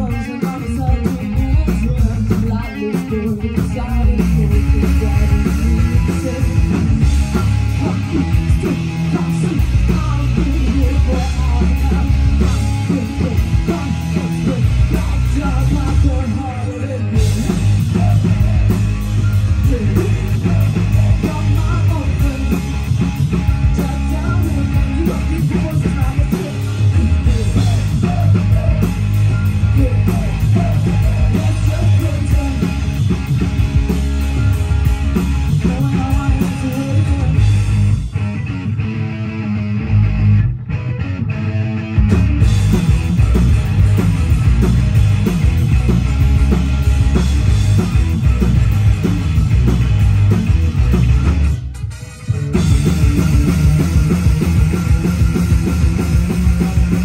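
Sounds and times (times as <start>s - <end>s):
woman singing: 0.0s - 5.6s
bass guitar: 0.0s - 57.0s
distorted electric guitars: 0.0s - 57.0s
drums: 0.0s - 57.0s.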